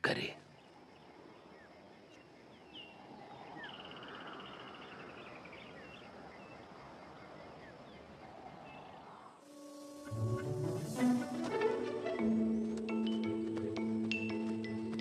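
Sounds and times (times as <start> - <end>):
insect hum: 0.0 - 13.5.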